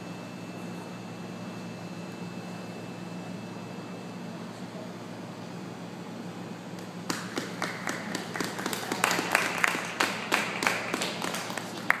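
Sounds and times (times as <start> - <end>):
steady low hum: 0.0 - 12.0
hand clapping: 6.8 - 12.0.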